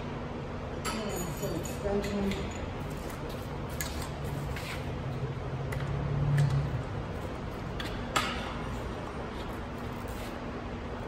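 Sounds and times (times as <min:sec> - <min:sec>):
hand tools clinking on metal: 0:00.8 - 0:02.8.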